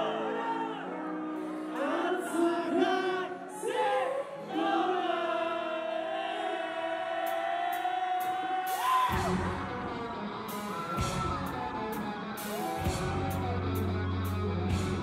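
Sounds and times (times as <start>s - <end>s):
band chords: 8.7s - 15.0s.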